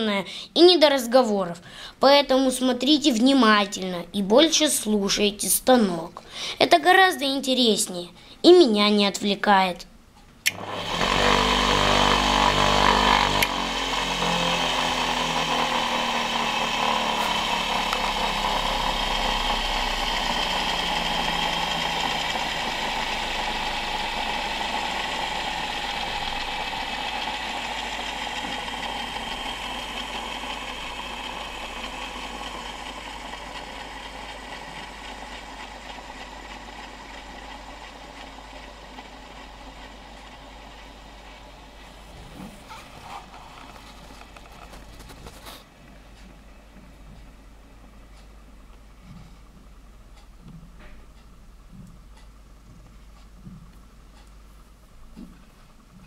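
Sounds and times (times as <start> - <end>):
wood lathe motor whine: 10.5 - 45.5.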